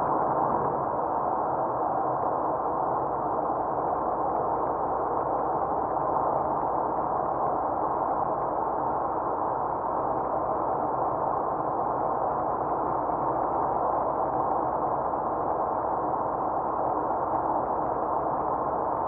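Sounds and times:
car road and tyre noise: 0.0 - 3.4.

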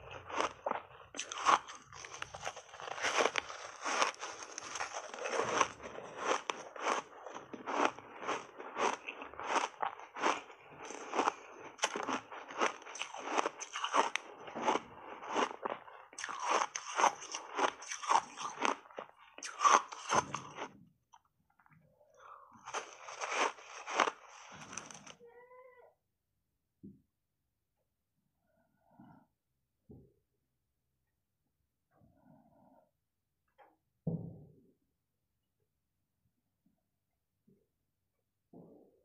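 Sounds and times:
ice bar crunching and chewing: 0.0 - 20.8, 22.2 - 25.2.

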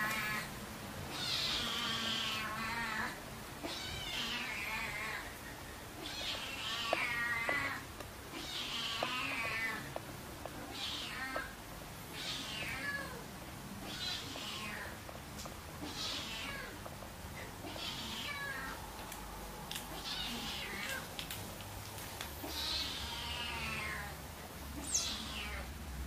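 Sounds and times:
cat meowing: 1.1 - 5.3, 6.0 - 9.9, 10.6 - 11.6, 12.2 - 13.2, 13.8 - 15.0, 15.8 - 16.8, 17.6 - 18.8, 19.9 - 21.1, 22.4 - 24.2, 24.8 - 25.7
faint clicks: 6.0 - 11.6.

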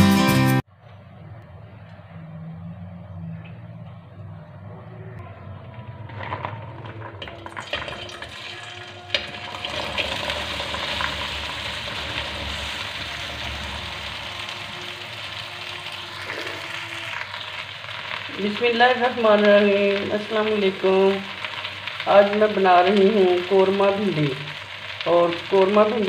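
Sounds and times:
oil sizzling: 5.6 - 26.0
oil crackling in a pan: 5.7 - 26.0.

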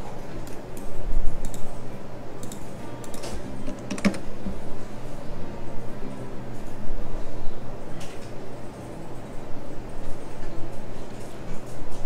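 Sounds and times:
keyboard keystrokes: 2.4 - 4.2.

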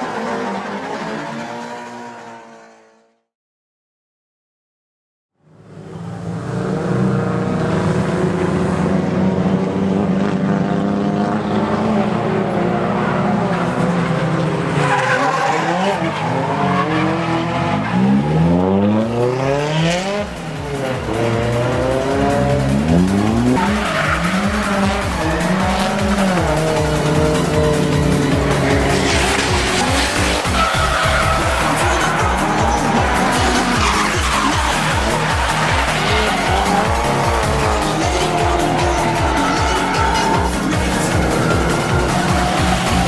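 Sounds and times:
car engines at high revs: 5.4 - 43.0
tyres squealing: 23.6 - 43.0.

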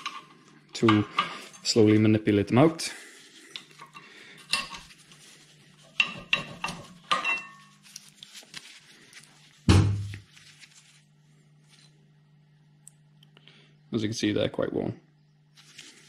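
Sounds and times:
heavy thud: 9.7 - 10.2.

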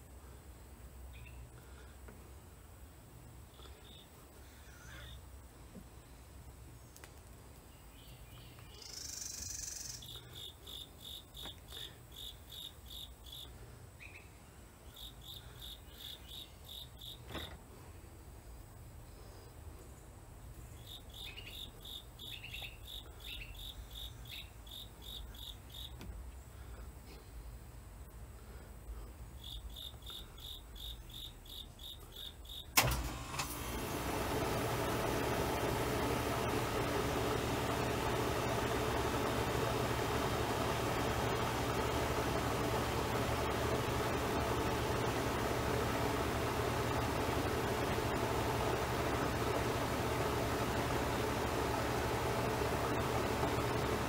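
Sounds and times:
low steady hum: 32.8 - 54.0.

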